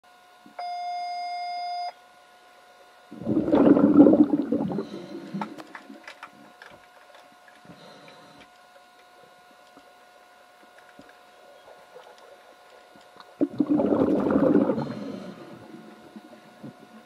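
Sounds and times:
churning water and bubbles: 3.1s - 6.0s, 13.3s - 17.0s.

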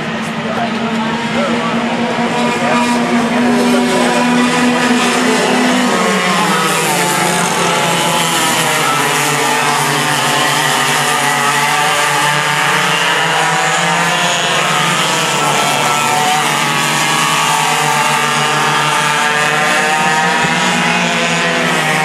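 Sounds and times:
go-kart engines revving: 0.0s - 22.0s.

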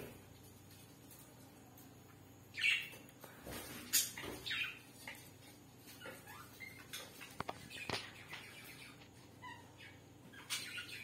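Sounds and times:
parrot chirps: 5.9s - 11.0s.

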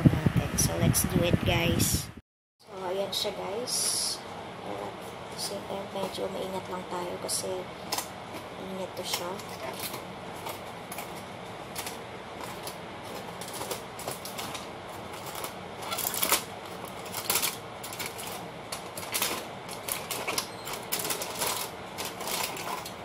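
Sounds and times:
aluminium foil crinkling: 7.9s - 23.0s.

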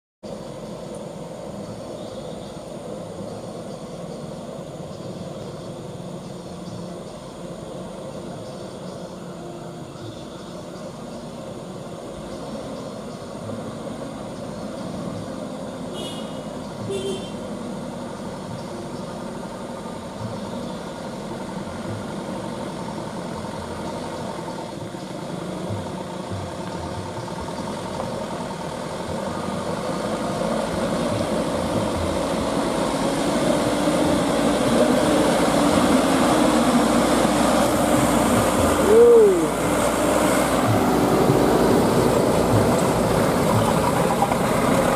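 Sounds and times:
truck engines under load: 0.2s - 44.9s.

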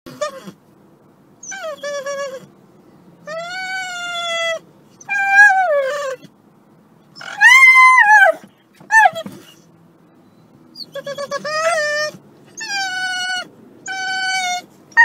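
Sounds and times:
dog howling: 3.3s - 6.3s, 7.2s - 9.3s, 10.8s - 15.0s.

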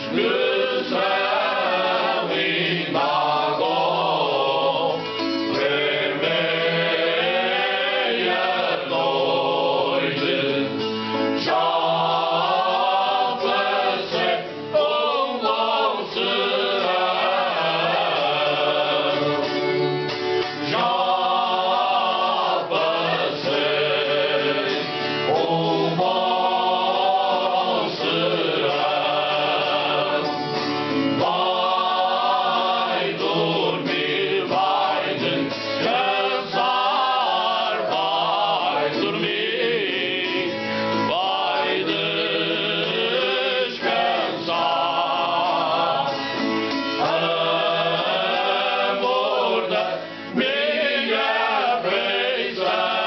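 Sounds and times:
men singing together: 0.0s - 20.0s, 20.6s - 53.0s
strummed guitar: 0.0s - 53.0s.

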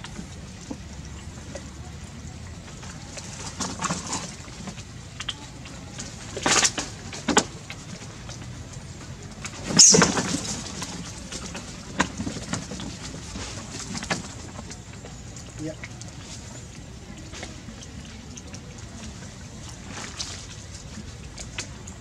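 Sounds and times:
young monkeys squealing: 9.8s - 10.3s.

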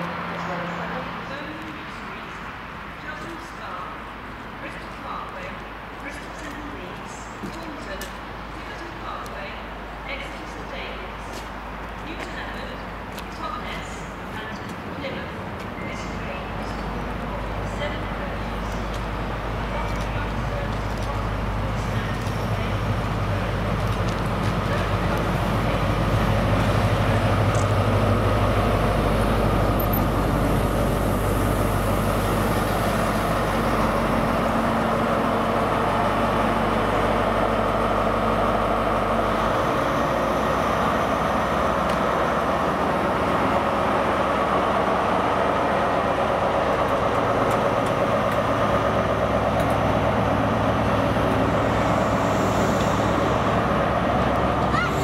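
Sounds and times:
diesel engine droning: 14.4s - 55.0s.

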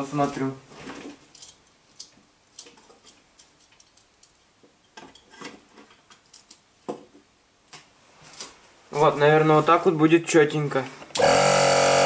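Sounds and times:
light clicks and clinks: 1.2s - 6.6s.

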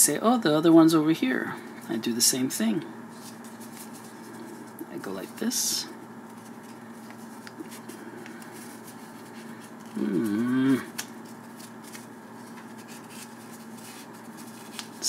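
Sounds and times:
steady low hum: 0.0s - 15.0s
man humming: 9.8s - 11.0s
faint paper clicks: 10.9s - 15.0s.

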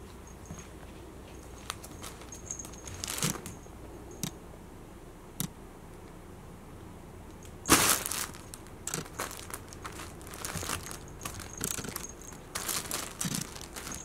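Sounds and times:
fabric tent rustling: 1.3s - 3.5s, 7.6s - 14.0s.

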